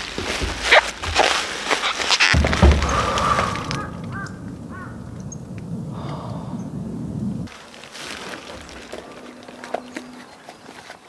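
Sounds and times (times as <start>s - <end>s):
bird calling: 1.8s - 7.5s, 8.2s - 11.0s
wind buffeting microphone: 2.4s - 7.5s.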